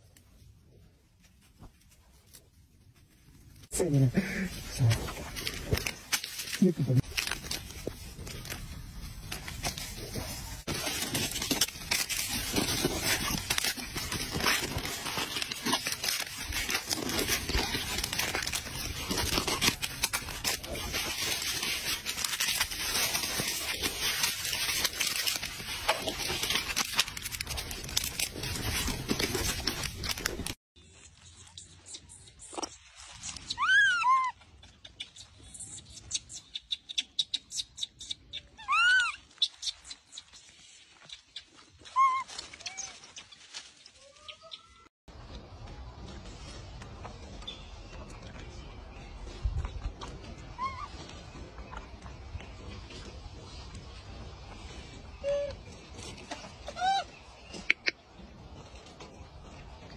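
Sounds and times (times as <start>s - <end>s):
dense crackling and rustling: 1.1s - 30.6s
monkey squealing calls: 33.4s - 34.4s, 38.5s - 39.8s, 41.9s - 43.0s, 50.6s - 51.0s, 56.6s - 57.1s.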